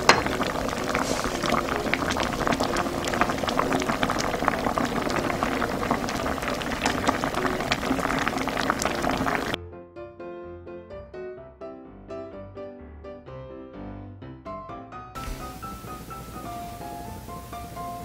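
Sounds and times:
stew bubbling at a hard boil: 0.0 - 9.6, 15.2 - 18.0
piano music: 0.0 - 18.0.

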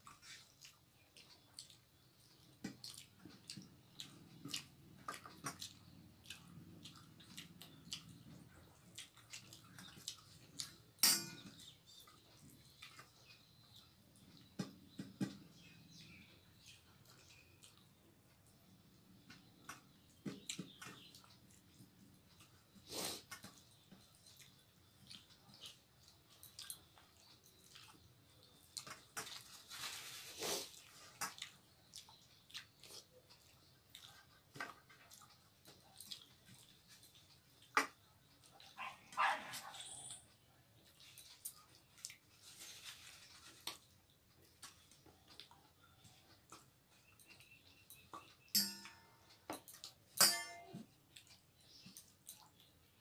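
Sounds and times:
chewing and mouth smacks: 0.0 - 15.0, 16.0 - 48.5, 49.2 - 50.1, 51.0 - 53.0
fingers squishing wet rice: 0.0 - 39.9
metal bowls clinking: 48.6 - 49.1, 50.2 - 50.8.

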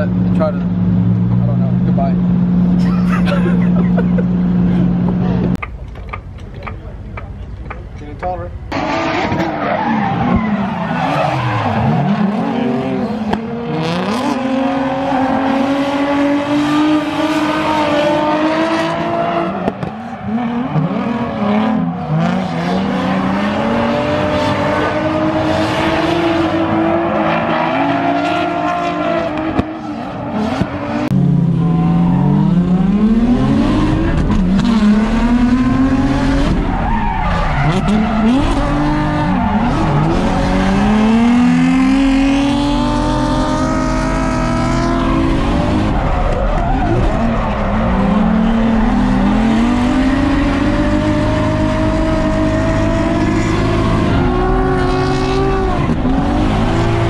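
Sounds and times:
car engine revving hard: 8.7 - 57.0.

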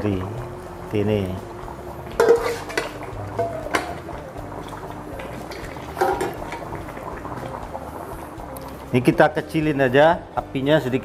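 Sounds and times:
water boiling and bubbling: 0.0 - 10.3
metal cookware clinking: 2.1 - 4.1, 5.5 - 6.7.

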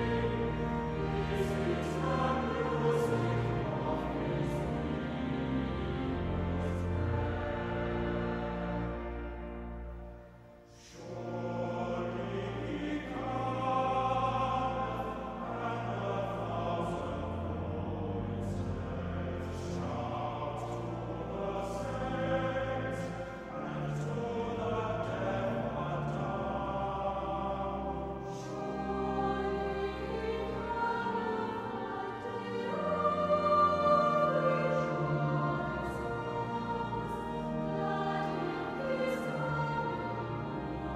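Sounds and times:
choir singing a hymn: 0.0 - 40.9
orchestral accompaniment: 0.0 - 40.9.

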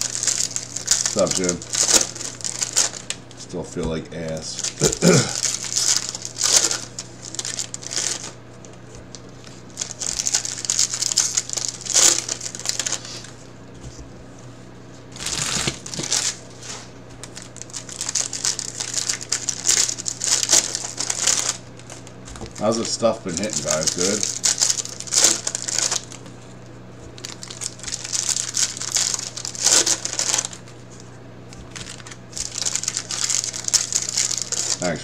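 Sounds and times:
cards being handled: 0.0 - 4.0, 15.1 - 35.0
foil wrappers crinkling and tearing: 0.0 - 14.1, 15.0 - 35.0
faint steady hum: 0.0 - 35.0.

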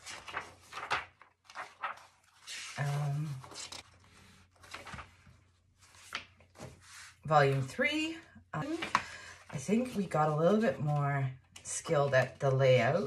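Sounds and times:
paper rustling and crinkling: 0.0 - 7.7, 8.6 - 11.0.

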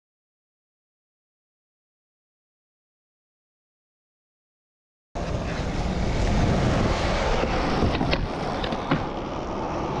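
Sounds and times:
skateboard wheels rolling on concrete: 5.2 - 10.0.

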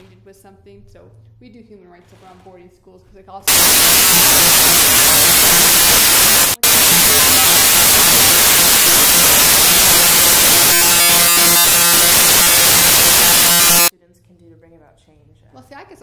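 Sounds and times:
loud static hiss: 3.5 - 13.9.

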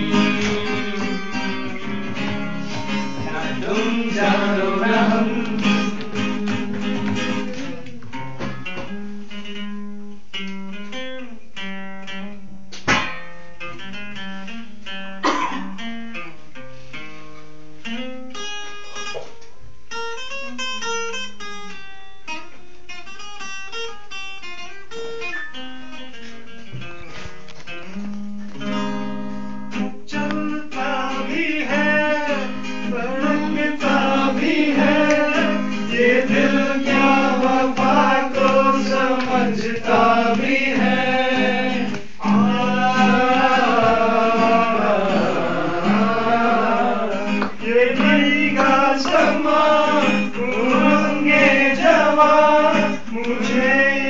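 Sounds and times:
person singing: 0.0 - 1.9, 2.6 - 8.2, 30.0 - 54.0
acoustic guitar playing: 0.0 - 54.0.

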